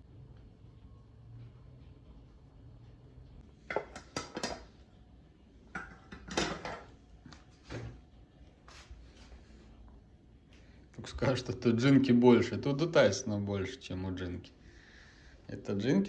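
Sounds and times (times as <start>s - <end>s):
dishes and spoon clinking: 3.7s - 4.7s, 5.7s - 7.0s.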